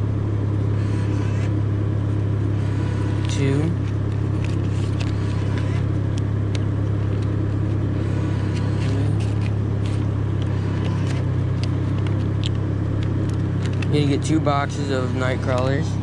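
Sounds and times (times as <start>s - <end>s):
low mechanical hum: 0.0s - 16.0s
paper bills crackling: 2.8s - 14.3s.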